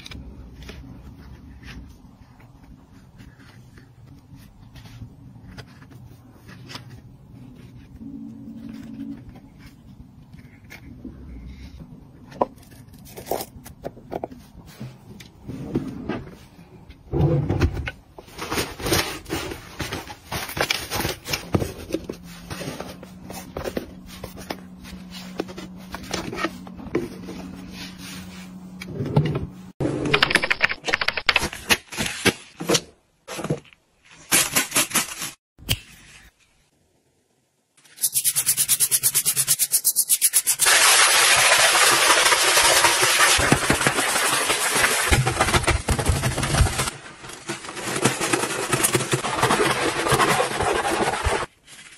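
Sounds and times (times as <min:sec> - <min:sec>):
sponge scrubbing a sink: 0:38.0 - 0:51.9.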